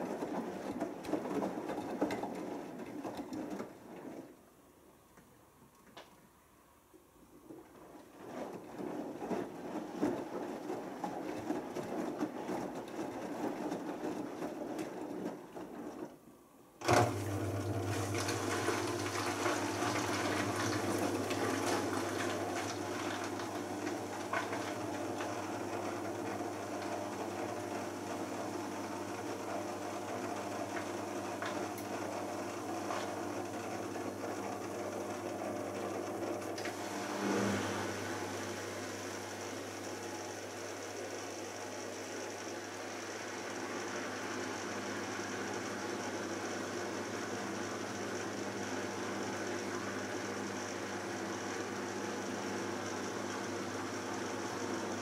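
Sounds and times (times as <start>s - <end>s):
washing machine tumbling load: 16.8s - 55.0s
steady electric hum: 35.1s - 45.7s.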